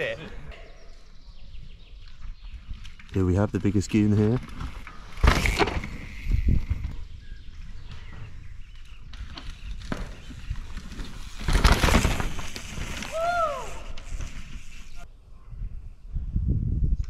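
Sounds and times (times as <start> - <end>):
mountain bike passing: 0.0 - 15.1
bike knocks: 9.2 - 13.0.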